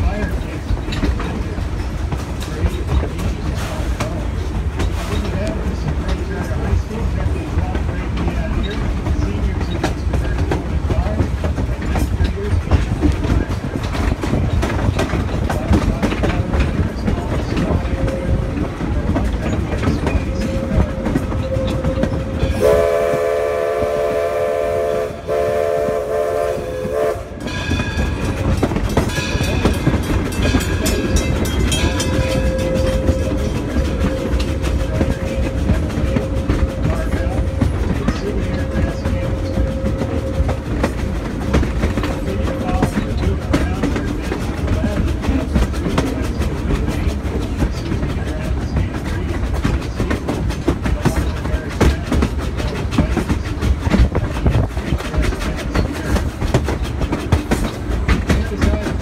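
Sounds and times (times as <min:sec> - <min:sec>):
steam locomotive rumble: 0:00.0 - 0:59.0
wheels clacking on rail joints: 0:00.0 - 0:59.0
train whistle blasts: 0:22.5 - 0:27.4.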